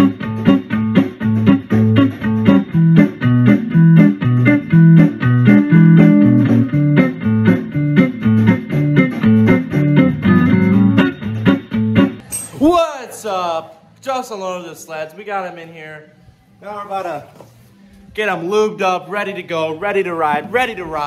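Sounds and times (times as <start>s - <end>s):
plucked guitar music with bass and beat: 0.0s - 12.3s.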